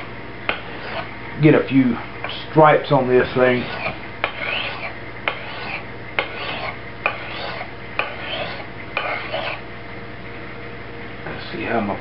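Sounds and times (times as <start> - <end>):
knife scraping on sharpening stone: 0.5 - 1.1, 3.6 - 9.6.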